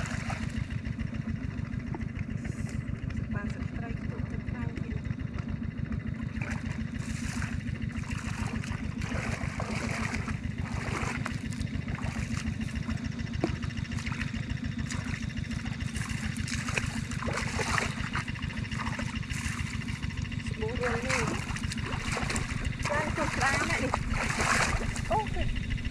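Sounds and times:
water trickling and splashing: 0.0s - 0.7s, 6.4s - 25.5s
small engine throbbing: 0.0s - 25.9s.

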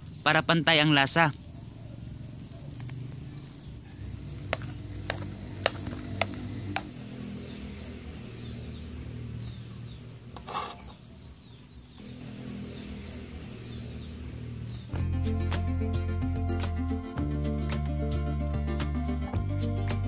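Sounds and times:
ladle scraping pot: 10.3s - 11.0s.

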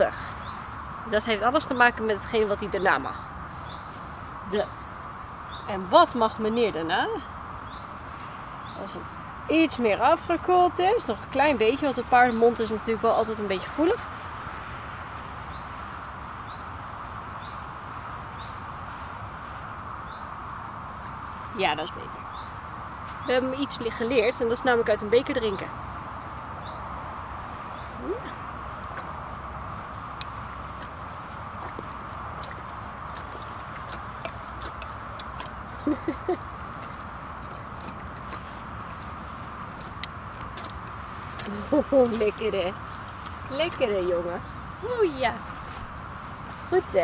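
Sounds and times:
outdoor background noise: 0.0s - 47.0s
bird chirping: 26.6s - 46.9s
horse slurping from a cup: 28.8s - 43.4s.

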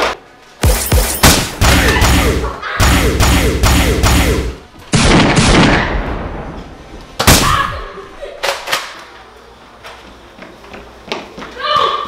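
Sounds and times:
sharp gunshots: 0.6s - 6.0s, 7.2s - 7.7s
booming gunshots with echo: 0.6s - 6.3s.

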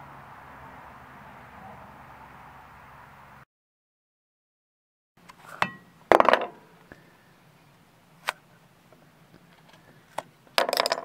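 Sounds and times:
metal tool knocks and clinks: 5.6s - 6.6s.

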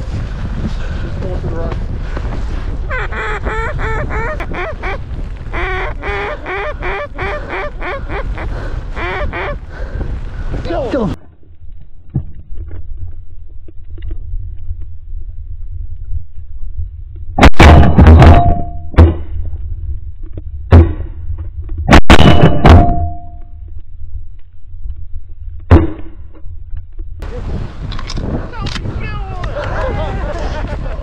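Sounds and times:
steady low rumble: 0.0s - 31.0s
shotgun blasts: 17.4s - 19.3s, 21.9s - 23.3s.

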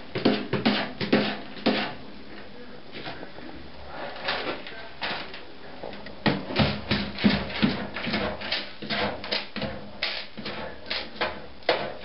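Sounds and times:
cat scratching in litter: 0.1s - 2.0s, 6.4s - 12.0s.

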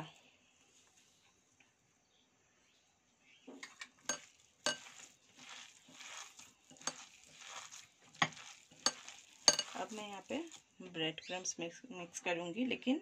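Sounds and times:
spoon clinking against bowl: 3.6s - 5.1s, 6.8s - 7.5s, 8.2s - 10.0s
spoon scraping thick mixture: 3.8s - 10.8s.

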